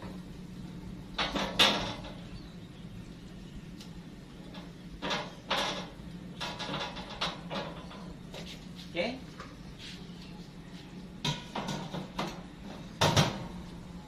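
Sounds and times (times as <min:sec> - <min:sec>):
knocks and scrapes on metal: 0:01.1 - 0:02.3, 0:04.5 - 0:08.2, 0:11.2 - 0:13.6.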